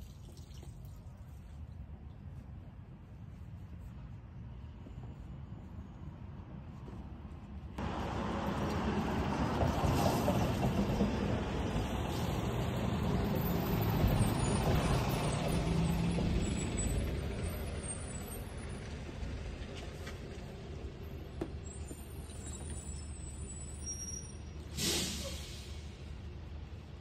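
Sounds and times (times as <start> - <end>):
large vehicle passing: 7.8 - 21.1.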